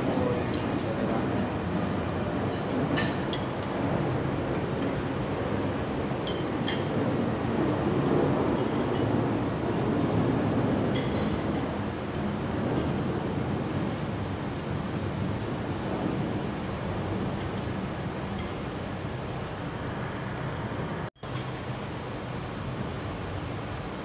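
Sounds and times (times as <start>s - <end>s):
cutlery clinking on plates: 0.0s - 3.9s, 6.2s - 6.9s, 11.0s - 12.3s.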